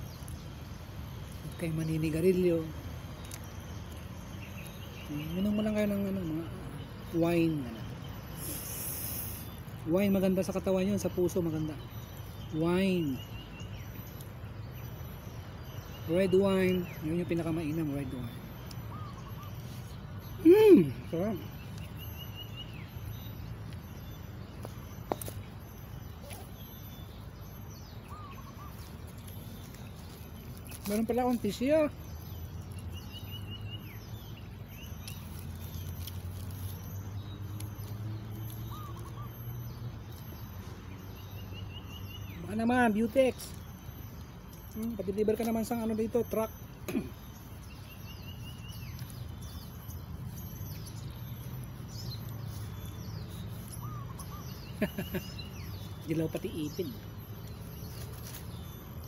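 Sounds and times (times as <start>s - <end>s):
birds chirping: 0.0s - 59.0s
wavering bird call: 18.2s - 23.0s, 27.9s - 30.2s, 38.6s - 39.8s, 51.8s - 58.4s.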